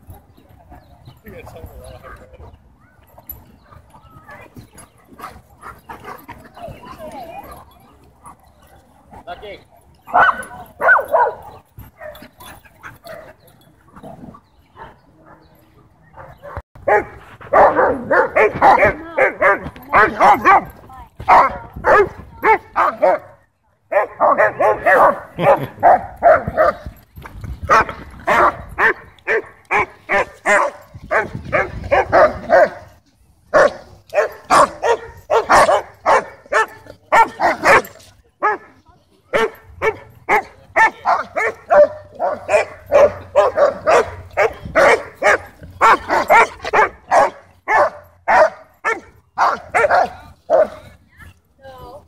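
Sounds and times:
dogs barking: 10.0s - 26.9s, 27.7s - 32.9s, 33.5s - 50.9s.

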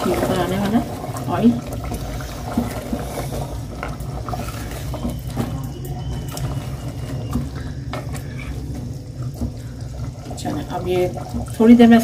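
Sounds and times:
gravy bubbling in a pot: 0.0s - 12.0s
steady low hum: 0.0s - 12.0s.

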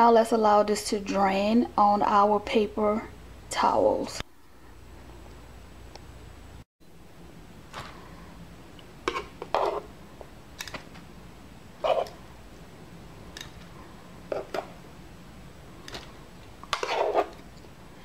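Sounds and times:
utensil tapping and scraping pan: 9.0s - 9.9s, 16.6s - 17.4s.

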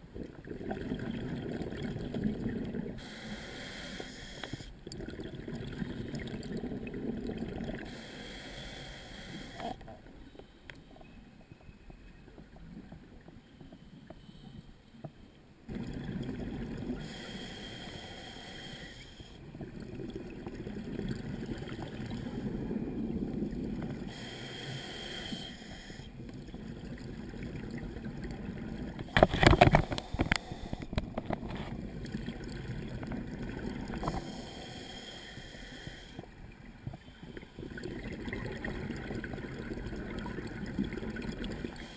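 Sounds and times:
bubbling exhalations: 0.2s - 3.0s
regulator hissing inhalations: 3.0s - 4.7s, 7.9s - 9.7s, 17.0s - 19.4s, 24.1s - 26.2s, 29.8s - 30.9s, 34.1s - 36.3s.

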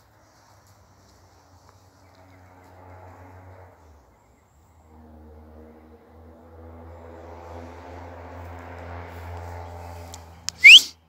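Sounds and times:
distant engine hum: 0.0s - 11.0s.

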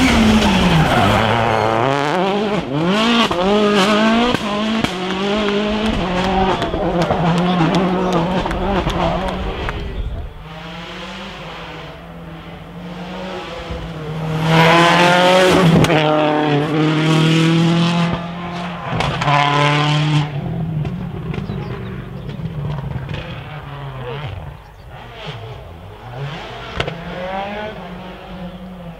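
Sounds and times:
rally car engine revving: 0.0s - 28.9s.

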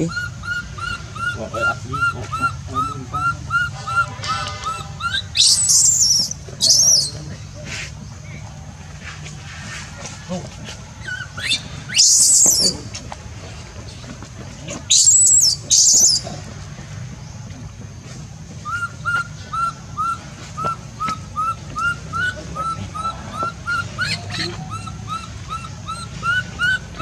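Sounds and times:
baby monkey chirping whimpers: 0.0s - 7.2s, 11.0s - 12.8s, 14.9s - 16.4s, 18.6s - 27.0s
baby monkey screaming: 0.0s - 7.8s, 11.0s - 12.9s, 14.9s - 16.3s, 18.6s - 27.0s.

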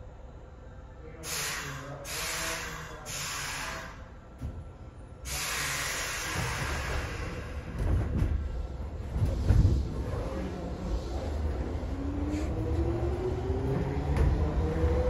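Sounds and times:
low train rumble: 0.0s - 15.0s
train brakes air hissing: 1.2s - 4.1s, 5.2s - 7.6s.

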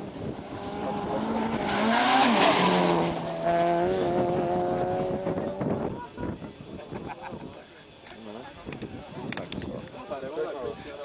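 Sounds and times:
rally car engine revving past: 0.0s - 5.6s.

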